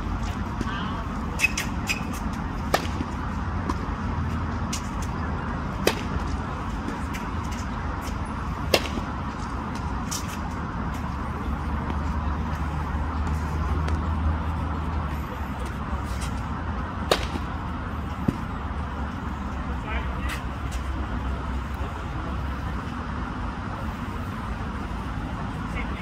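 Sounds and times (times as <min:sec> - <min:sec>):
tennis balls struck by rackets: 0:01.3 - 0:04.0, 0:04.6 - 0:10.5, 0:15.6 - 0:18.5
tennis balls bouncing: 0:01.4 - 0:04.0, 0:04.7 - 0:10.5, 0:17.0 - 0:18.5.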